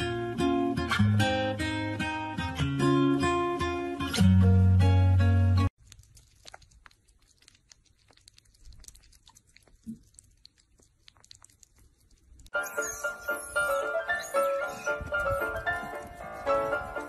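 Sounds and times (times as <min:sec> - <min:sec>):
acoustic guitar music: 0:00.0 - 0:05.7
animals licking and chewing food: 0:05.8 - 0:17.0.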